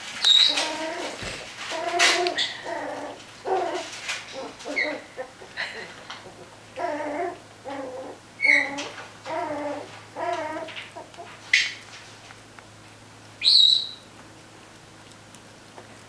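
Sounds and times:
puppies yipping and squeaking: 0.1s - 11.8s, 13.4s - 14.0s
puppy high-pitched squeals: 0.2s - 5.3s, 6.8s - 11.1s.

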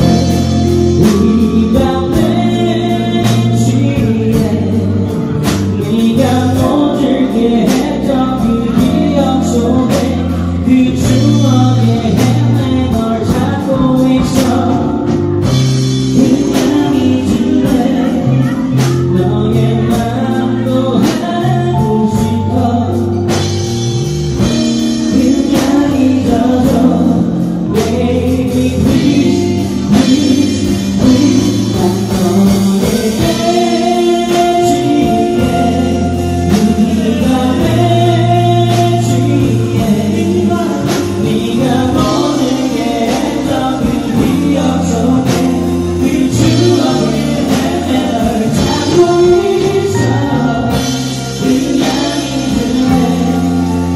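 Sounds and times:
bass guitar: 0.0s - 53.9s
drums: 0.0s - 53.9s
keyboard: 0.0s - 53.9s
man singing: 0.0s - 53.9s.

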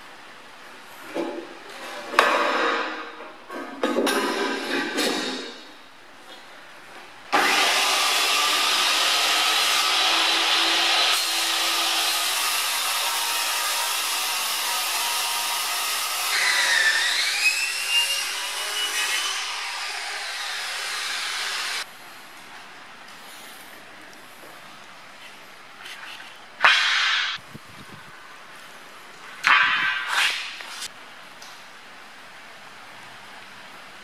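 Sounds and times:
circular saw cutting aluminium: 7.4s - 21.8s.

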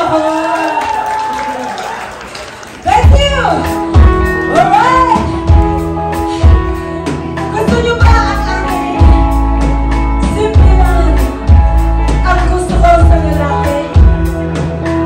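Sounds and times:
electric guitar: 2.8s - 15.0s
bass guitar: 2.9s - 15.0s
drum kit beat: 2.9s - 15.0s
woman singing: 7.5s - 9.4s, 10.2s - 11.5s, 12.1s - 14.1s.

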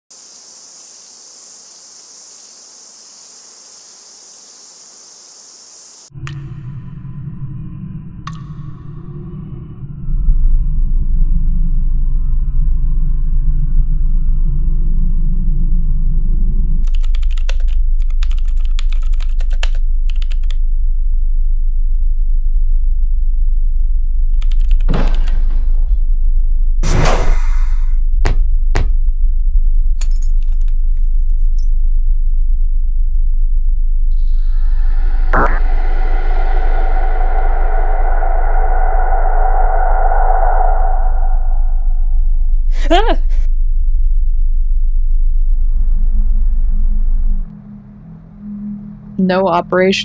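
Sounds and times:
insects chirring: 0.1s - 6.1s, 34.2s - 42.0s
steady low hum: 6.0s - 18.2s, 31.0s - 50.0s
low rumble: 6.1s - 18.1s, 19.8s - 50.0s
computer keyboard typing: 16.9s - 20.6s
loud burst of noise: 34.2s - 42.2s.

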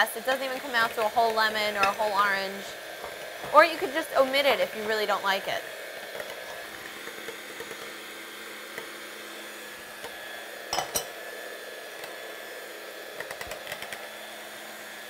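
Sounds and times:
electric mixer running: 0.0s - 15.0s.

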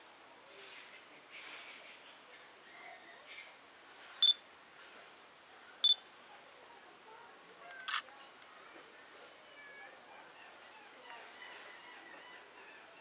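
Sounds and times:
camera beeping: 7.8s - 8.0s
camera shutter click: 7.8s - 8.1s.

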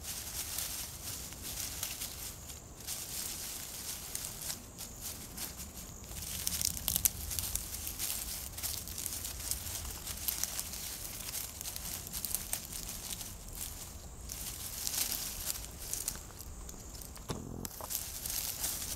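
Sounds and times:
animal rooting through dry leaves: 0.0s - 18.9s.

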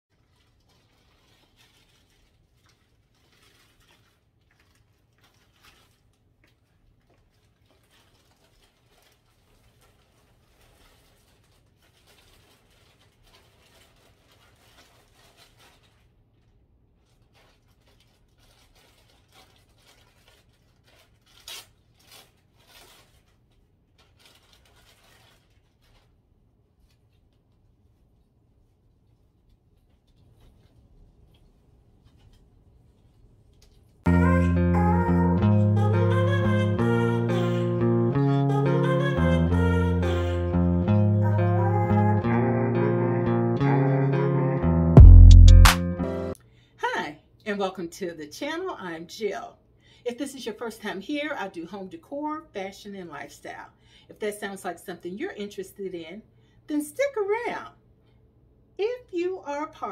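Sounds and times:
rustling fabric or paper: 0.1s - 34.1s
low room hum: 0.1s - 42.7s.

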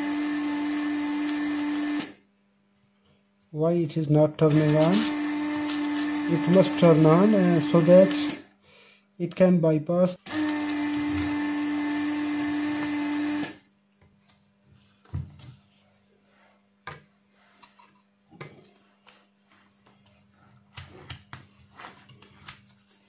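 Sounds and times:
desoldering pump humming: 4.4s - 8.4s, 10.2s - 13.6s.

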